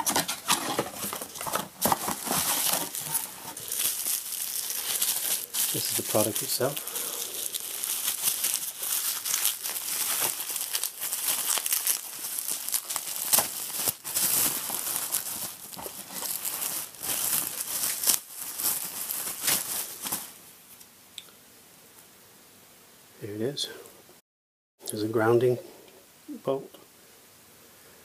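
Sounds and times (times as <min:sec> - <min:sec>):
bubble wrap crinkling: 0:00.0 - 0:20.7.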